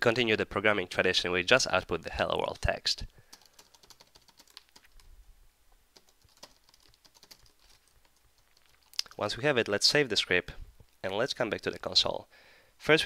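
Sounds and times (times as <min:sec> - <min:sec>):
faint keyboard typing: 0:02.4 - 0:05.1, 0:05.9 - 0:09.8.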